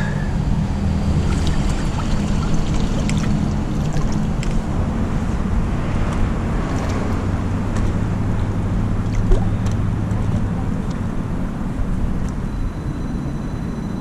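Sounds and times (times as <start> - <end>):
river water rushing: 0.0 - 9.6.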